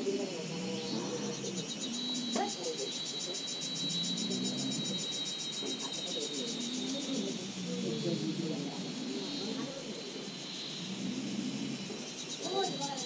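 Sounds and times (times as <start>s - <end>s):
faint voices murmuring: 0.0s - 13.0s
insect trilling: 0.0s - 13.0s.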